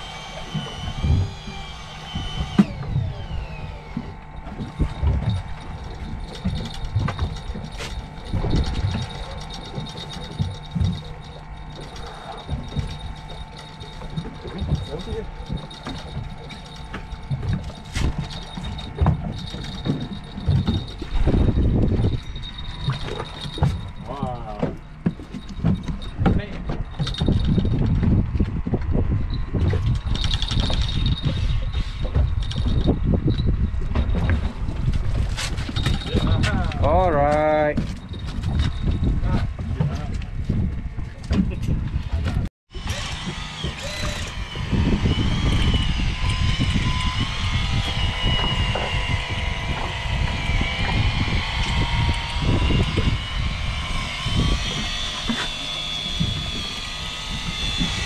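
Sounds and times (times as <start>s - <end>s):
fishing reel ticking and whirring: 0.0s - 40.8s, 42.8s - 58.0s
wind rumble on microphone: 0.0s - 58.0s.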